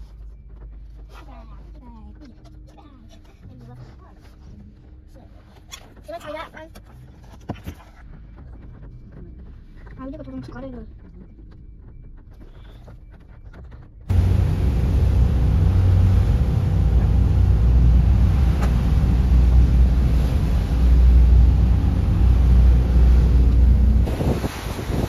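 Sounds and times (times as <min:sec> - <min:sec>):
wind buffeting microphone: 0:14.1 - 0:25.0.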